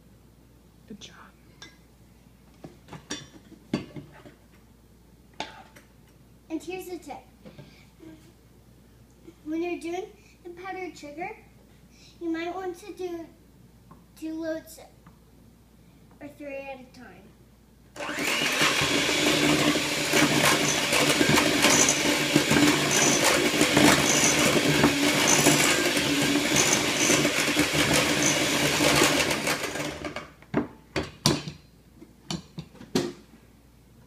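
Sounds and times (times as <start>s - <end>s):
electric hand mixer whisking: 18.0s - 30.2s.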